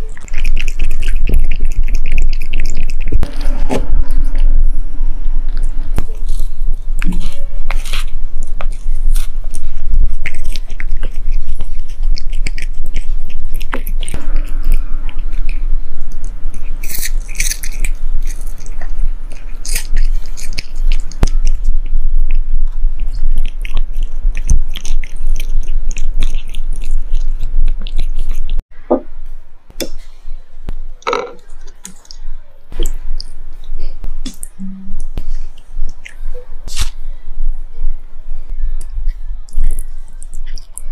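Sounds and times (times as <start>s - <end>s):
cat crunching food: 0.0s - 4.5s, 5.5s - 28.6s.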